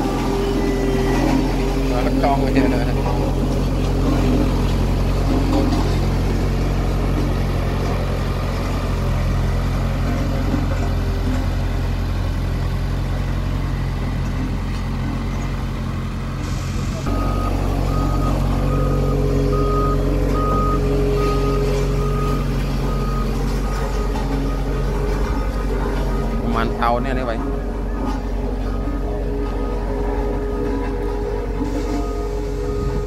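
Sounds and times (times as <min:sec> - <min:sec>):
reversing alarm beeping: 0:00.0 - 0:03.4, 0:17.0 - 0:33.0
road roller diesel engine: 0:00.0 - 0:33.0.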